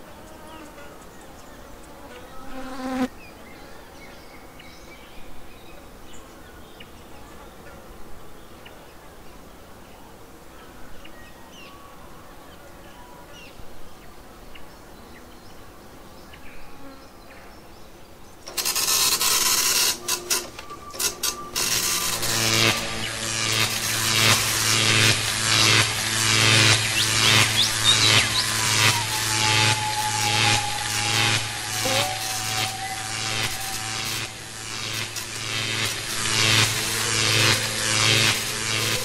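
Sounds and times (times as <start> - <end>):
harsh stuttering noise burst: 18.5 - 39.0
low hum tones: 18.5 - 39.0.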